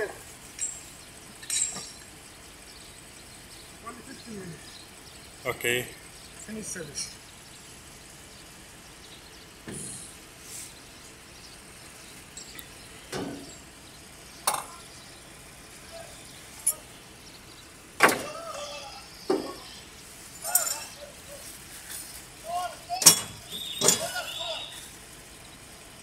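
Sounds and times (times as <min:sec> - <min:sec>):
hand tools and metal canisters clinking: 0:00.0 - 0:02.2, 0:12.3 - 0:13.6, 0:16.5 - 0:16.9, 0:20.3 - 0:22.2, 0:22.9 - 0:24.4.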